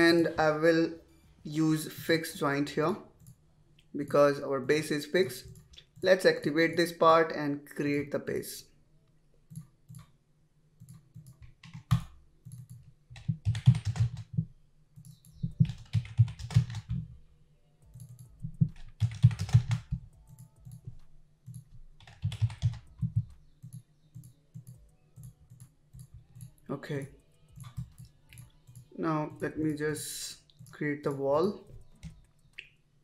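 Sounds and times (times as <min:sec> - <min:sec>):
keyboard typing: 0:10.8 - 0:17.2, 0:17.8 - 0:32.6.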